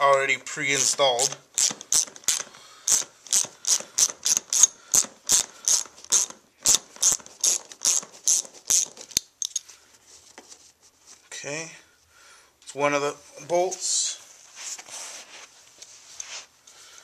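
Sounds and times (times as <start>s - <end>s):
hand ratchet clicking: 0.8s - 9.6s.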